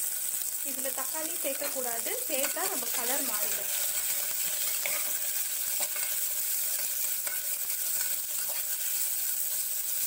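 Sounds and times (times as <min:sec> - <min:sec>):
onions sizzling: 0:00.0 - 0:10.0
metal spoon scraping and tapping pot: 0:01.6 - 0:03.2, 0:03.8 - 0:08.9.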